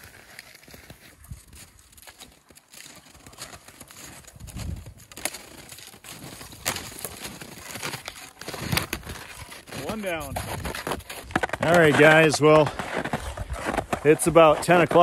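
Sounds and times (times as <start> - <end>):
footsteps crunching in snow: 0.0 - 15.0
tree dragged scraping over snow: 5.2 - 15.0.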